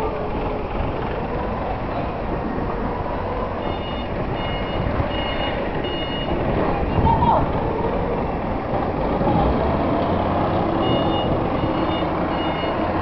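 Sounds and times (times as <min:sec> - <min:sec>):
reversing alarm beeping: 0:03.6 - 0:07.1, 0:10.8 - 0:13.0.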